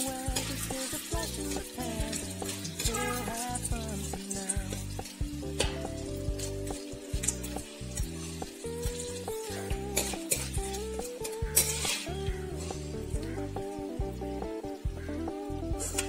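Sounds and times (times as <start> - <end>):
chillies sizzling in hot oil: 0.0 - 16.0
spoon scraping pan: 0.1 - 12.9.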